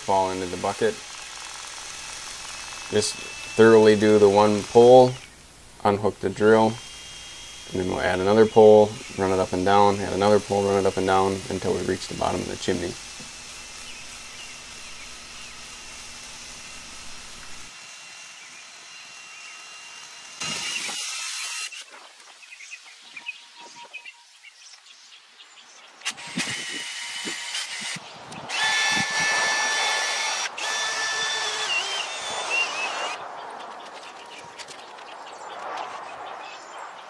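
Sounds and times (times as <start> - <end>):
cordless drill spinning brush in pipe: 0.0 - 5.3, 5.9 - 22.1, 26.0 - 33.2.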